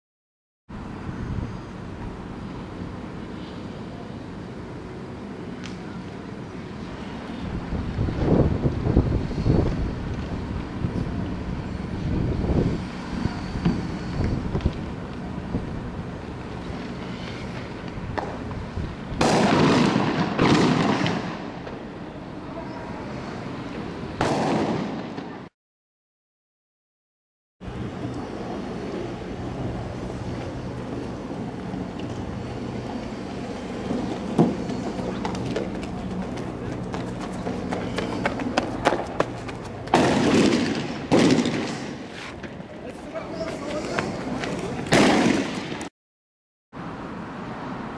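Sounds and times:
vehicle engine rumble: 0:00.7 - 0:20.3, 0:27.6 - 0:45.0
wind on microphone: 0:07.4 - 0:16.8
firework pops: 0:17.9 - 0:18.6, 0:19.2 - 0:21.8, 0:24.2 - 0:25.3, 0:39.9 - 0:42.6, 0:44.9 - 0:45.9
low engine rumble: 0:27.6 - 0:41.1.

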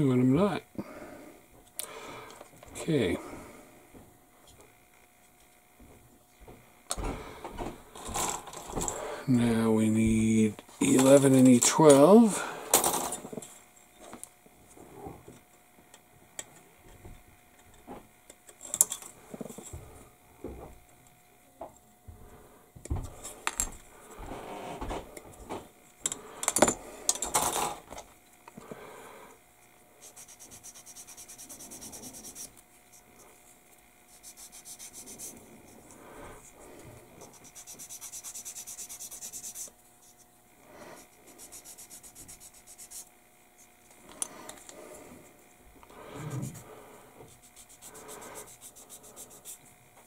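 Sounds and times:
sanding stick rubbing plastic: 0:30.0 - 0:33.2, 0:34.1 - 0:35.8, 0:37.2 - 0:40.2, 0:41.0 - 0:43.1, 0:47.2 - 0:49.7.

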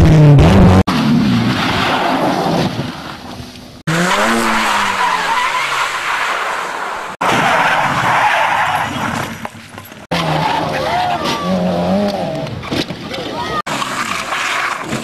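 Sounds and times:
tyres skidding on gravel: 0:00.9 - 0:15.0
racing engine revving: 0:03.9 - 0:05.7.

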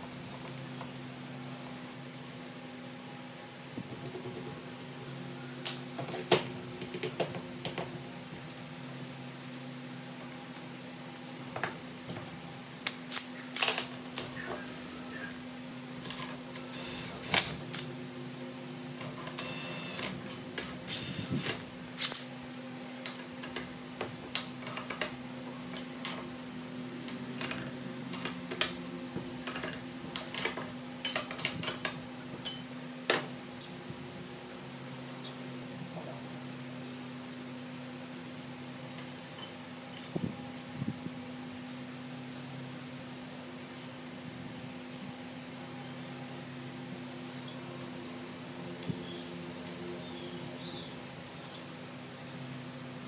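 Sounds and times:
steady low hum: 0:00.0 - 0:53.0
metal tools clicking and clinking: 0:29.4 - 0:32.7, 0:38.6 - 0:40.2.

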